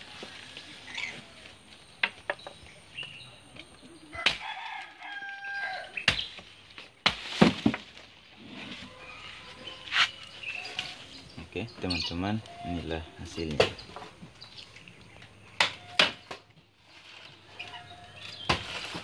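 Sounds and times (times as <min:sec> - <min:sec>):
rooster crowing: 0:04.1 - 0:06.0.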